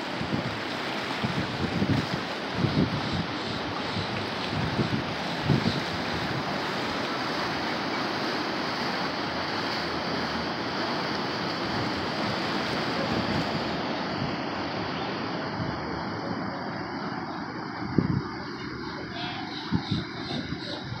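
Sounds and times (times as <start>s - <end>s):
waves breaking on beach: 0.0s - 21.0s
wind on microphone: 0.0s - 21.0s.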